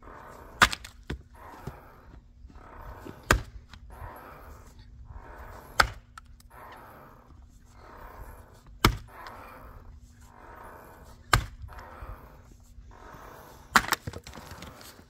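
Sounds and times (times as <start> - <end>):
axe splitting wood: 0.6 - 1.2, 3.2 - 3.6, 5.7 - 6.2, 8.8 - 9.1, 11.3 - 11.7, 13.7 - 14.6.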